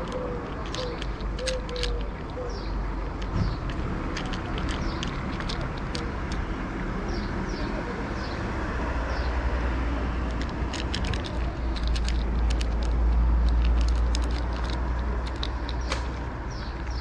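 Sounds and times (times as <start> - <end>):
cat crunching dry kibble: 0.0 - 6.6, 10.1 - 17.0
low rumble of road traffic: 0.0 - 17.0.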